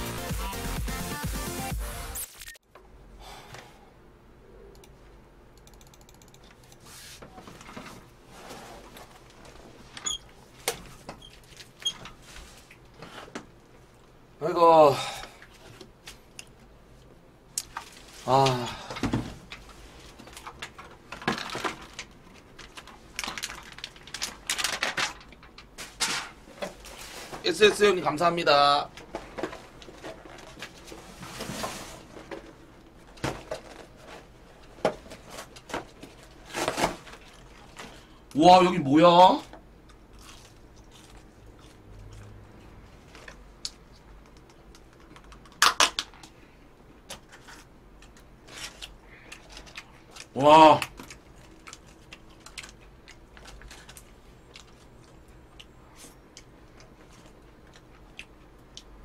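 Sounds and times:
plastic bag rustling: 19.7s - 27.9s.

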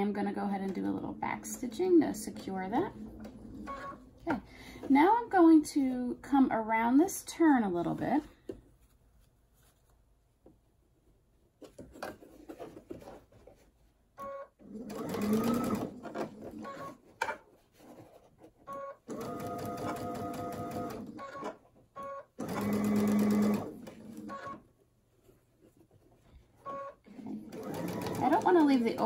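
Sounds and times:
sewing machine stitching: 14.3s - 17.0s, 18.7s - 24.6s, 26.7s - 29.0s.

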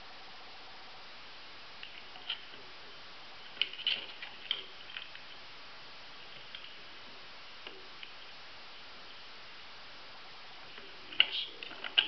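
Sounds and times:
faint steady hiss: 0.0s - 12.0s
plastic parts clicking together: 11.1s - 12.0s.

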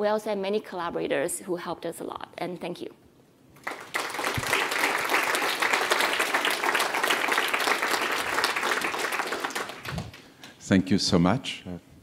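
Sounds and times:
audience applauding: 3.6s - 10.3s.

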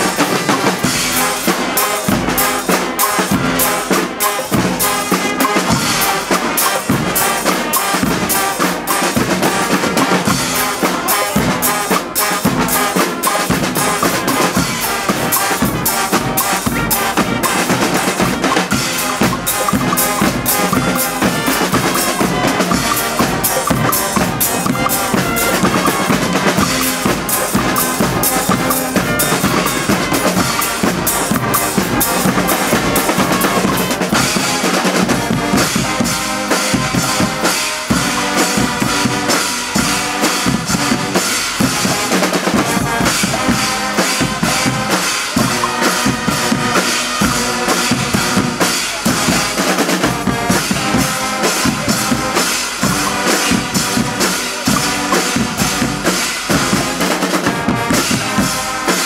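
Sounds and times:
brass band playing loudly: 0.0s - 59.0s
drums and cymbals beat: 0.0s - 59.0s.

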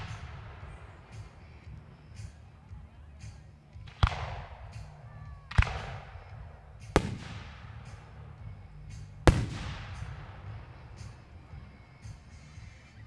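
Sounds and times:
firework booms with echo: 0.0s - 0.9s, 5.5s - 8.0s, 9.2s - 10.6s.

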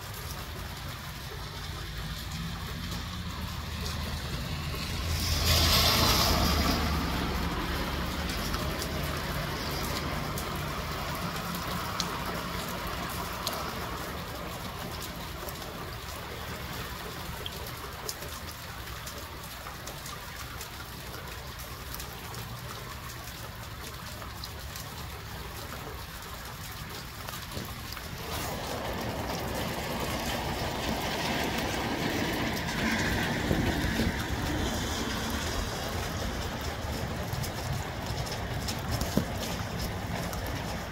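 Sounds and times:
rain falling: 0.0s - 40.9s
gusty wind: 28.2s - 40.9s.

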